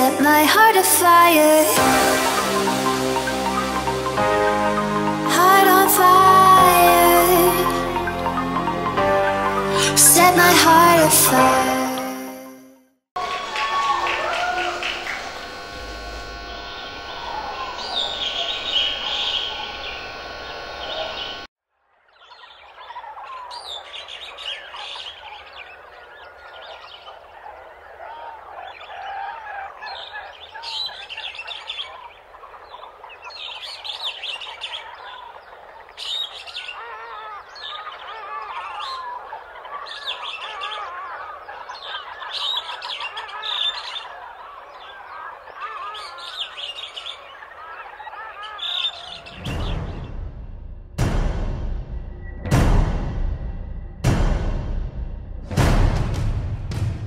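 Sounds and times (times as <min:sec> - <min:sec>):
music playing: 0:00.0 - 0:12.5, 0:49.2 - 0:57.0
birds chirping over speakers: 0:13.2 - 0:50.2.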